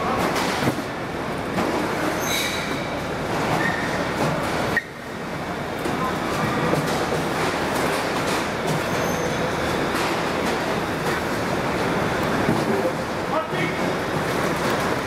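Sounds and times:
short wheel squeals: 0:02.2 - 0:02.8, 0:03.6 - 0:04.0, 0:08.9 - 0:09.4.

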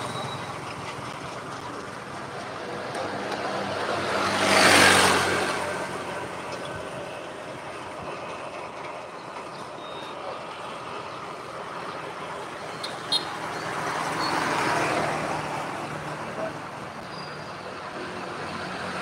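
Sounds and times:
street noise: 0:00.0 - 0:19.0
vehicle passing by: 0:02.4 - 0:07.4.

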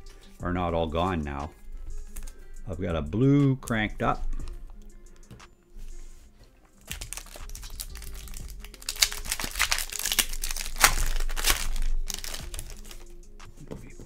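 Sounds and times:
wrapper crinkling and tearing: 0:06.8 - 0:13.1.

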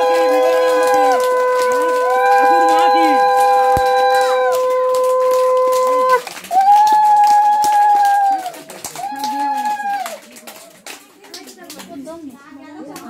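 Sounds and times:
conch shell blown: 0:00.0 - 0:06.2
hand claps: 0:00.0 - 0:12.1.

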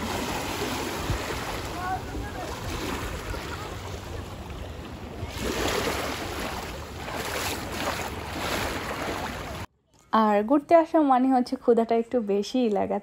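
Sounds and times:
small waves lapping on shore: 0:00.0 - 0:09.7.

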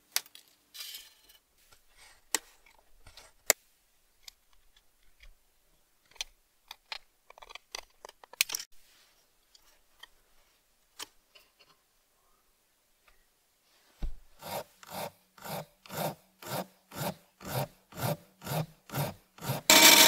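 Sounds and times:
tin snips cutting metal sheet: 0:19.7 - 0:20.0.

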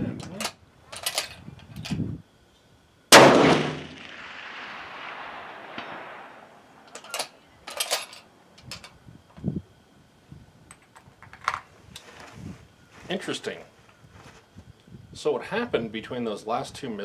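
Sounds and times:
rifle shot echoing: 0:03.1 - 0:06.9.

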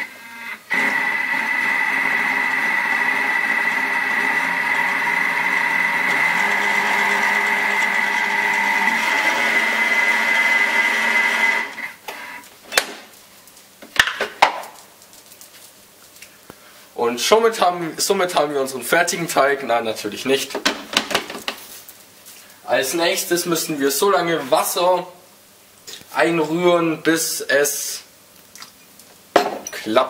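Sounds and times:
electric mixer motor whining: 0:00.0 - 0:12.2.

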